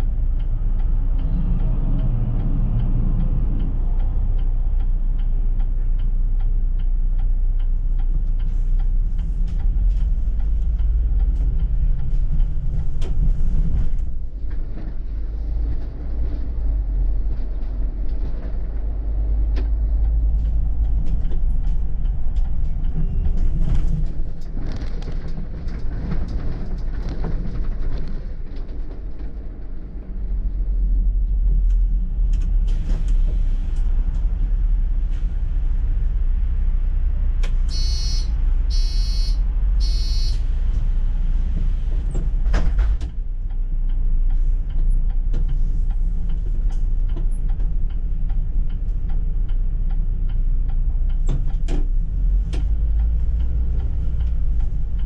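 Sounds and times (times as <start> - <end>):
bus engine and road rumble: 0.0 - 55.0.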